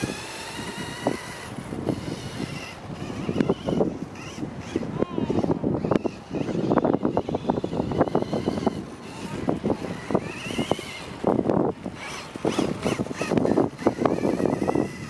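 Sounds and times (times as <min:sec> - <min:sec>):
electric motor and gear whine: 0:00.0 - 0:15.0
tyres crackling on dirt: 0:05.8 - 0:15.0.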